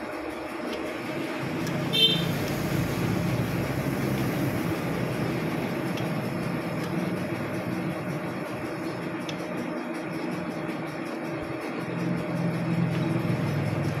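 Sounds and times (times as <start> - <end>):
lathe machinery drone: 0.0 - 14.0.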